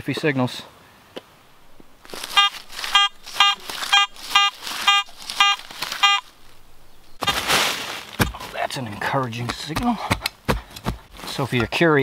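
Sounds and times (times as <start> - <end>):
metal detector beeping: 2.2 - 6.4.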